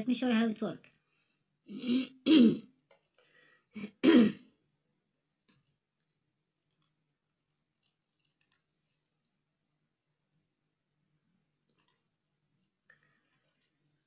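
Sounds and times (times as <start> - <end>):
person clearing throat and coughing: 1.7 - 2.8, 3.8 - 4.5.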